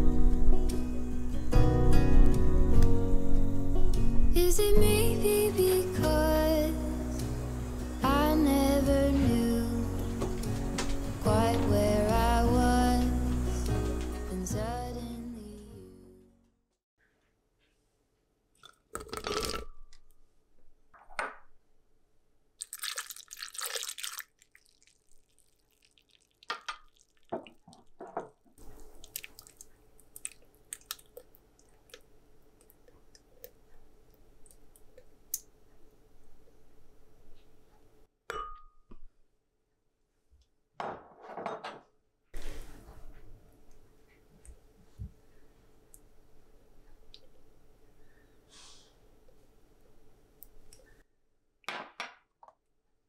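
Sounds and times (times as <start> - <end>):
liquid pouring and splashing: 22.6 - 28.0, 28.6 - 32.8
clinks against glass: 38.3 - 38.9.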